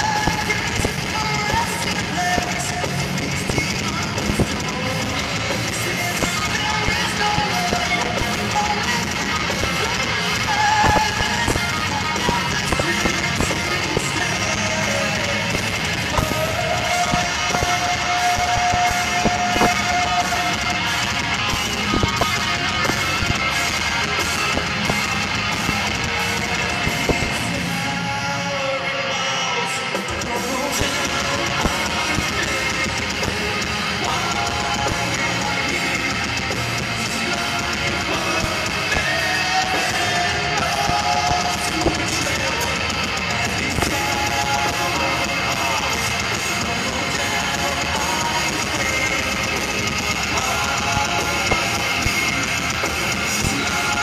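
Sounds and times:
drum kit: 0.0s - 28.1s, 29.9s - 54.0s
distorted electric guitars: 0.0s - 54.0s.

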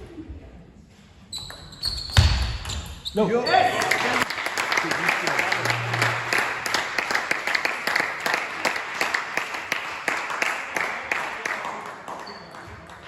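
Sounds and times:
crowd clapping: 3.7s - 13.0s.

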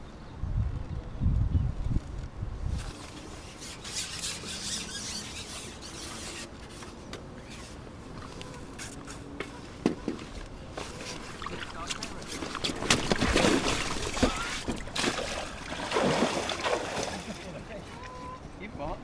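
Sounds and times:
pole sections rubbing and sliding: 2.7s - 7.8s.

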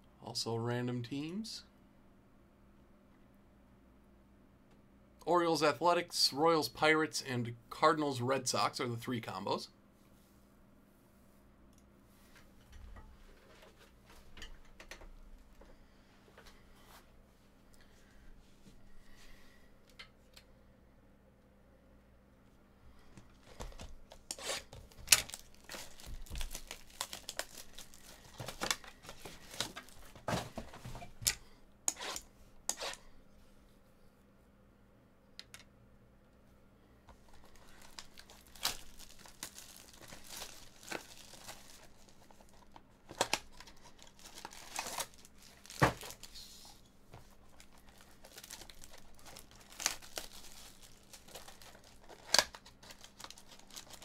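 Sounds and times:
plastic wrap crinkling and tearing: 23.4s - 30.2s, 37.3s - 46.4s, 47.2s - 54.0s.

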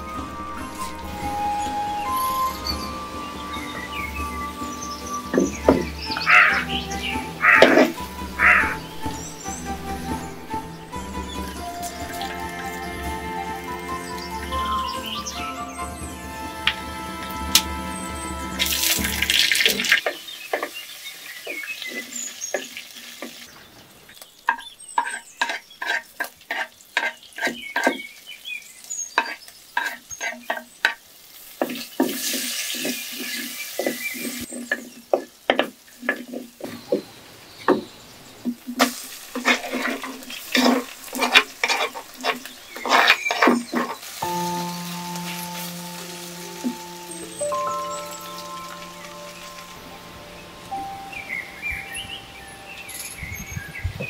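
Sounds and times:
spices sizzling in hot oil: 0.0s - 53.8s
wooden spoon knocking pot: 33.8s - 37.1s.

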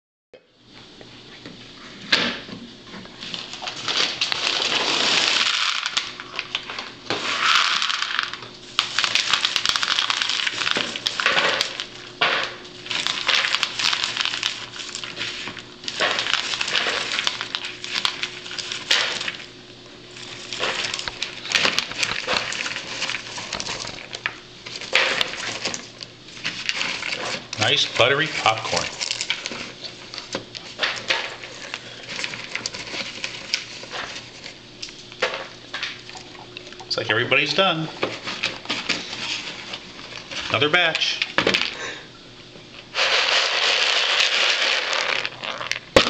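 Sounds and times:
hands rustling through popcorn: 3.2s - 36.2s, 36.9s - 42.0s, 42.8s - 46.0s
popcorn poured into bowl: 3.8s - 19.5s, 42.9s - 46.0s.

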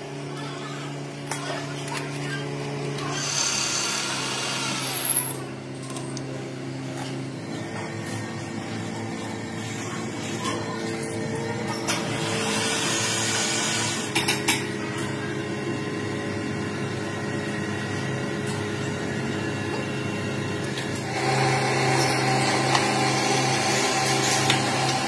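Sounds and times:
power tool running: 2.6s - 8.2s, 11.7s - 25.0s.

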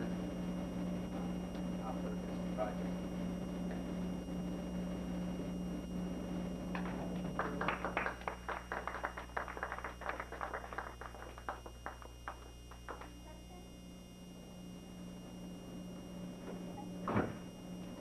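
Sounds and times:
group clapping: 6.7s - 13.2s.

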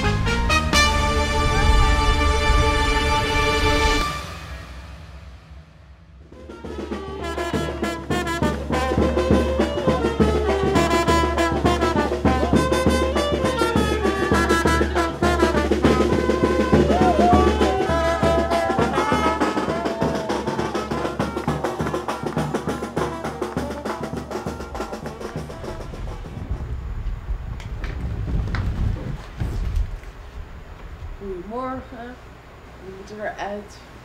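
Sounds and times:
brass band playing: 0.0s - 5.4s, 6.2s - 26.5s
steady drum beat: 4.1s - 26.9s.

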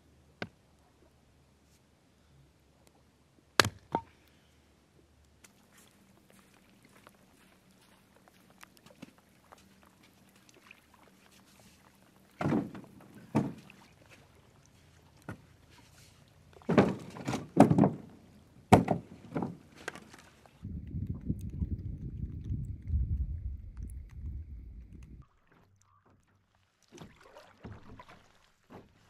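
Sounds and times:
wood thunking in canoe hull: 12.4s - 13.8s, 16.6s - 20.2s.

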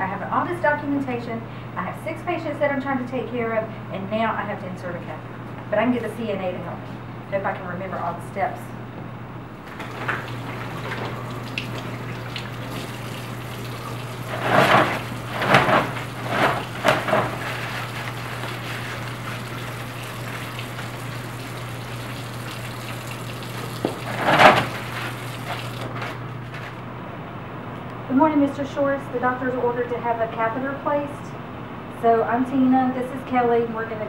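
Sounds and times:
water splashing: 9.6s - 26.2s
tap water running into sink: 9.7s - 26.0s.

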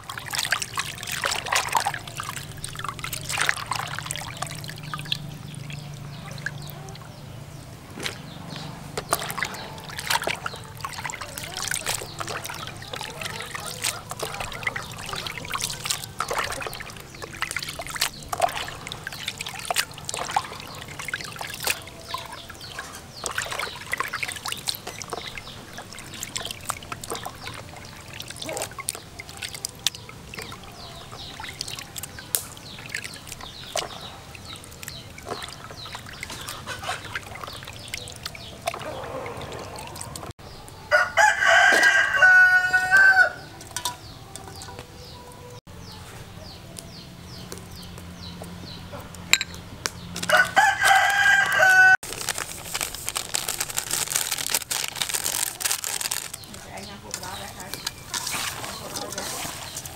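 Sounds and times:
rooster crowing: 40.8s - 43.6s, 50.2s - 52.0s
frogs handled in plastic colander: 50.3s - 59.9s.

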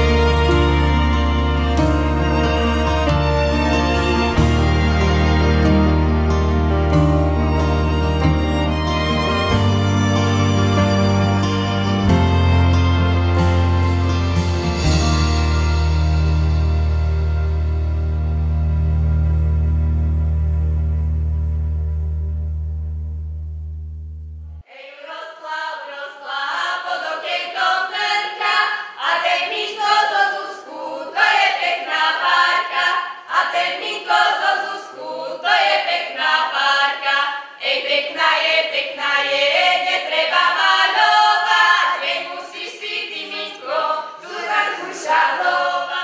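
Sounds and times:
choir singing a cappella: 0.0s - 6.7s, 24.6s - 46.0s.

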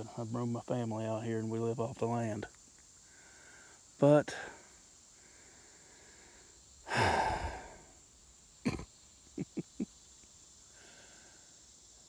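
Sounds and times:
man breathing out heavily: 3.0s - 8.0s, 10.7s - 11.6s.

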